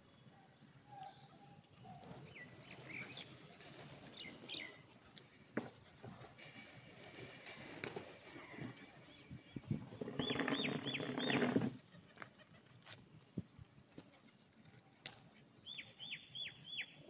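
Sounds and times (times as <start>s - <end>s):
pigeons flapping and scuffling: 2.0s - 14.8s.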